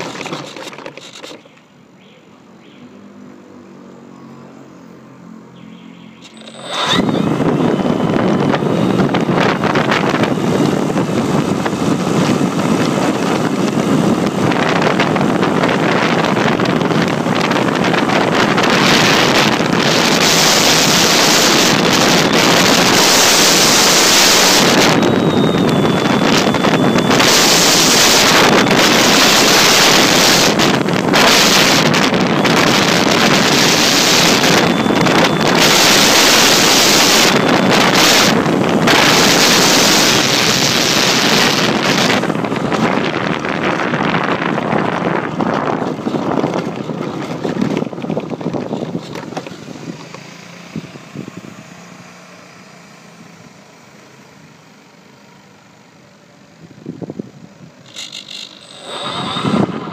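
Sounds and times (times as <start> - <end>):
faint high whine: 6.2 - 10.4, 20.1 - 41.7, 57.8 - 59.9
model plane motor running: 6.2 - 50.2, 57.8 - 59.9
wind rushing over microphone: 6.4 - 52.1, 56.6 - 58.0, 58.6 - 59.9.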